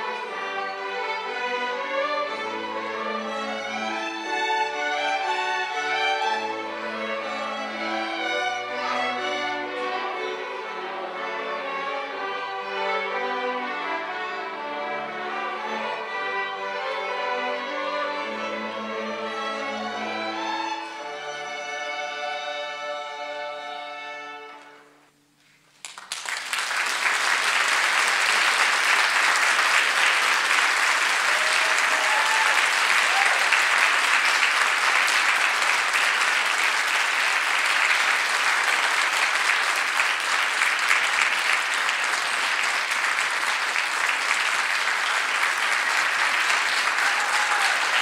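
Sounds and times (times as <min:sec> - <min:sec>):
audience applause: 0:25.8 - 0:48.0.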